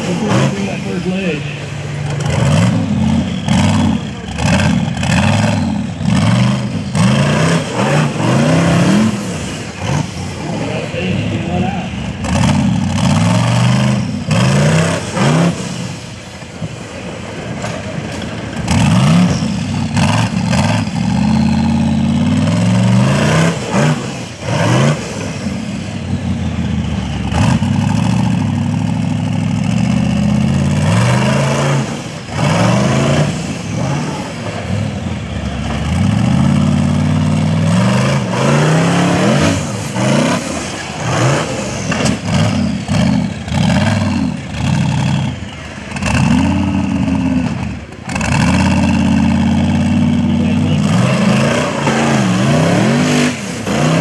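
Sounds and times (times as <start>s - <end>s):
engine revving hard: 0.0s - 1.5s, 2.1s - 16.0s, 18.6s - 28.8s, 29.6s - 54.0s.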